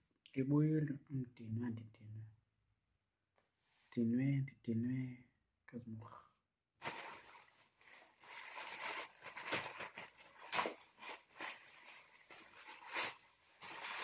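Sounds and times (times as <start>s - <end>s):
plastic bag crinkling: 6.8s - 14.0s.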